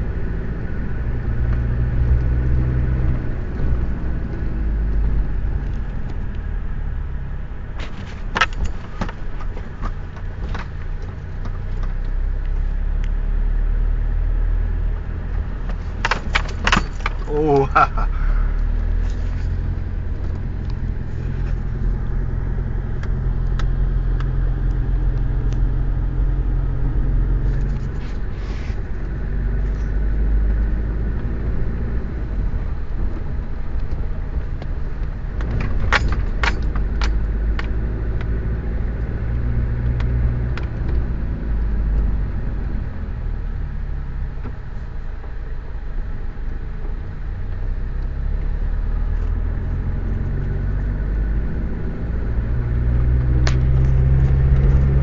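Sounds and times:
car engine and road noise: 0.0s - 55.0s
sharp clicks or rattles: 15.6s - 17.4s.

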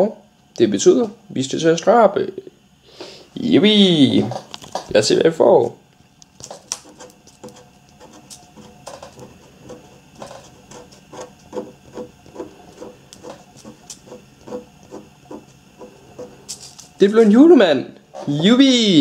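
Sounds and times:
scratch card being scratched: 6.4s - 16.9s.

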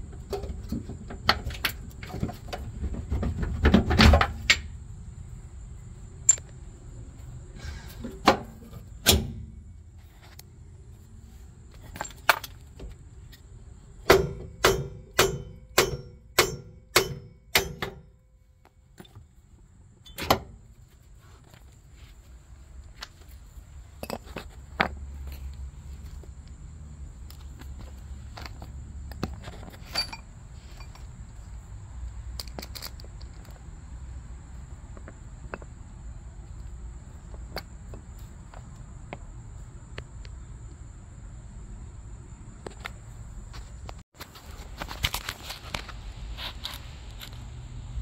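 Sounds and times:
sharp metal strikes: 9.0s - 9.6s, 14.1s - 18.2s.

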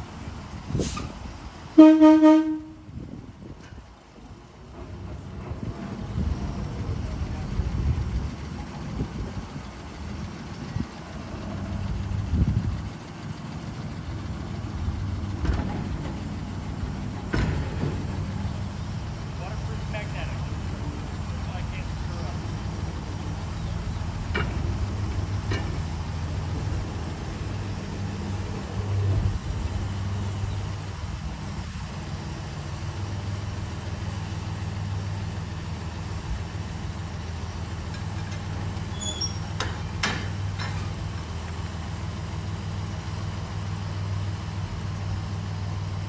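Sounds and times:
rail motorcar engine droning: 0.0s - 46.0s
metal clanks: 37.8s - 41.0s
high squeaks: 38.9s - 39.6s.

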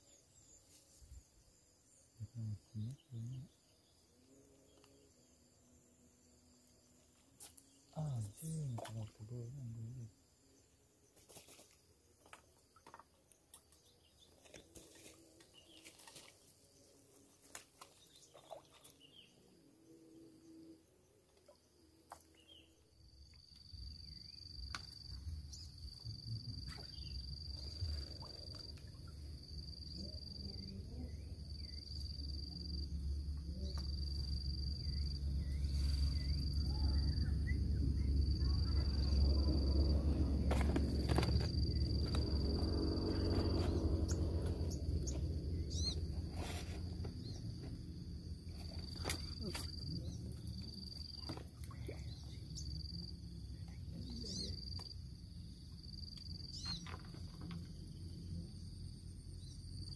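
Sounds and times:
insect trilling: 22.4s - 53.1s, 54.0s - 54.9s, 55.9s - 57.8s
wind rumble on microphone: 35.6s - 47.8s.

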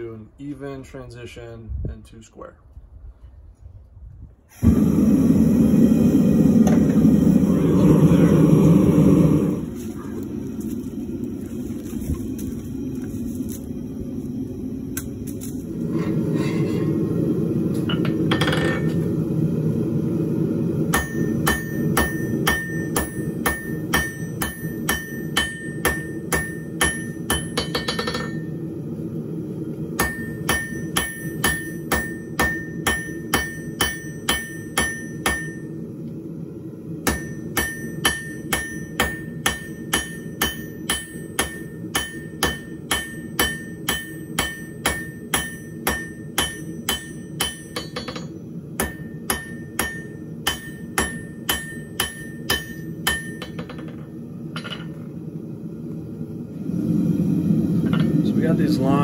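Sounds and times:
low rumble: 2.8s - 30.9s
hammer striking hot metal: 17.7s - 19.1s, 20.9s - 28.6s, 29.9s - 35.8s, 37.0s - 55.1s, 57.8s - 58.3s
anvil ringing: 21.0s - 28.6s, 30.0s - 35.8s, 37.1s - 55.0s.

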